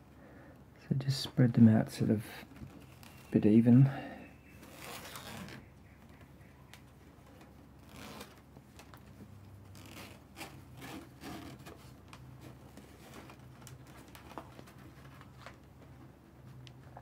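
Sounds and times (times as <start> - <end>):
cord rustling and rubbing: 2.4 - 3.4, 4.5 - 6.2, 6.8 - 17.0.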